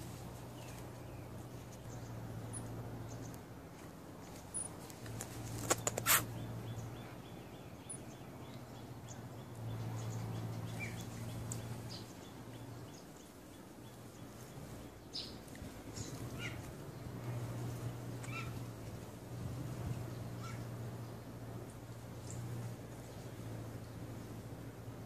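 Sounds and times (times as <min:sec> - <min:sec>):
low steady hum: 0:00.0 - 0:25.0
sharp clicks: 0:04.9 - 0:06.3.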